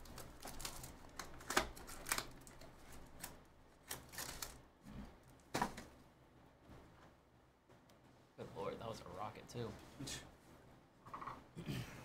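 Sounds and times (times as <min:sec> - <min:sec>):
shrink wrap tearing: 0:00.0 - 0:04.6.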